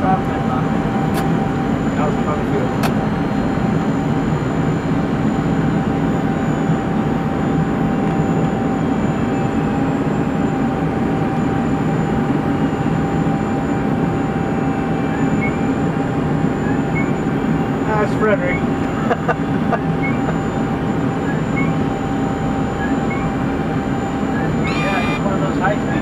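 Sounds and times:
jet engines and air rush: 0.0s - 26.0s
thin steady whine: 0.0s - 26.0s.

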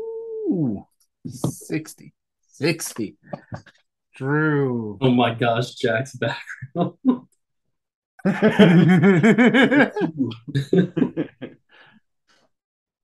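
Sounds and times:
men laughing: 8.2s - 11.6s.

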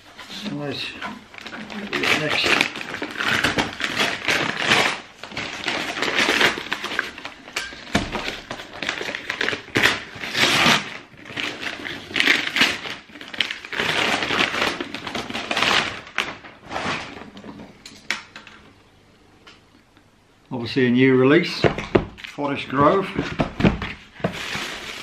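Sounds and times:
paper crinkling and tearing: 0.0s - 17.6s, 22.2s - 25.0s.

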